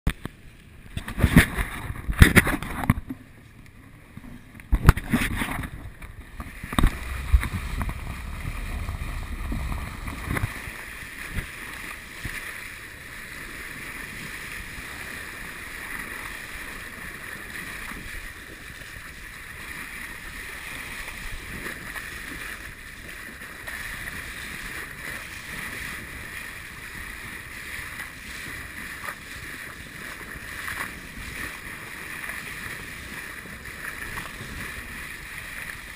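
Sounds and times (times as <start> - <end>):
moving water: 0.1 - 35.9
wind rushing: 6.2 - 11.3.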